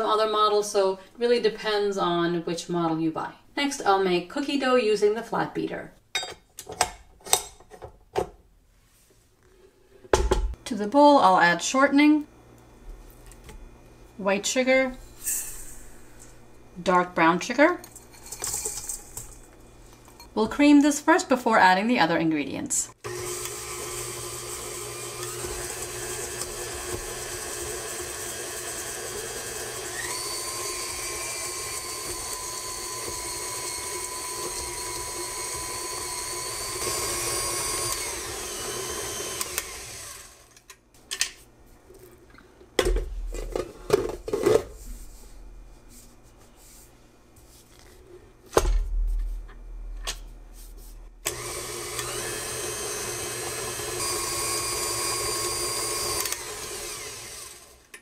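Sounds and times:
knocks and thumps: 0:10.1 - 0:10.6
stand mixer motor running: 0:23.1 - 0:40.5, 0:51.2 - 0:57.8.

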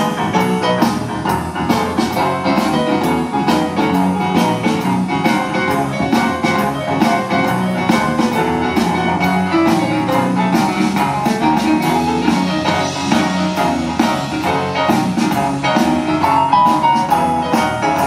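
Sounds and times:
bass: 0:00.0 - 0:18.0
drum kit beat: 0:00.0 - 0:18.0
electric guitar: 0:00.0 - 0:18.0
keyboard: 0:00.0 - 0:18.0.

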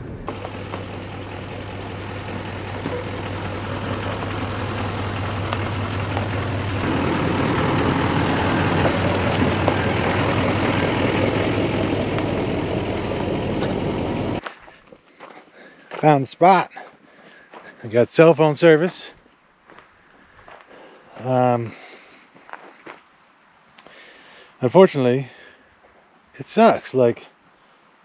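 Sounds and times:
pickup truck engine: 0:00.0 - 0:14.4
tyres rumbling on dirt: 0:00.0 - 0:14.7.

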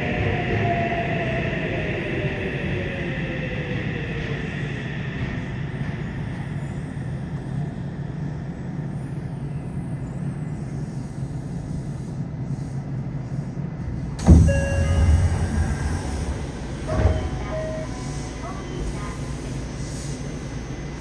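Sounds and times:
subway train rumbling: 0:00.0 - 0:21.0
air brakes hissing: 0:10.8 - 0:21.0
short tones: 0:14.2 - 0:18.8.

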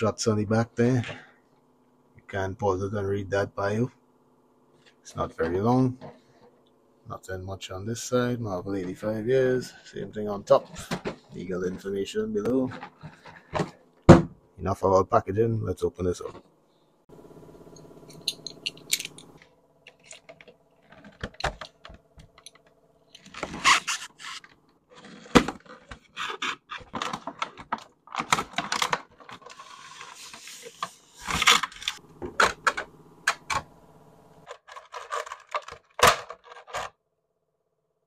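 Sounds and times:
plastic tray rattling and crinkling: 0:23.2 - 0:32.8, 0:34.5 - 0:36.9.

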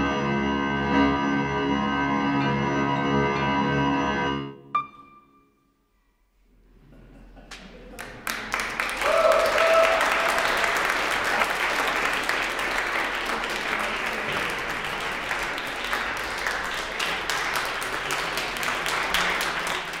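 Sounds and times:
audience applauding: 0:07.5 - 0:20.0
held call from audience: 0:08.8 - 0:17.4.

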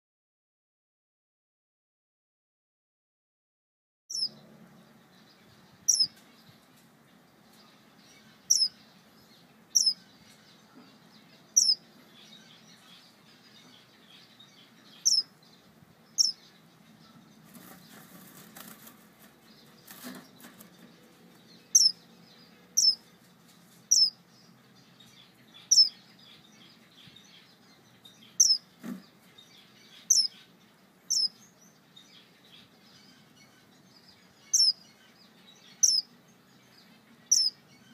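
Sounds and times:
wings fluttering: 0:17.4 - 0:21.0.

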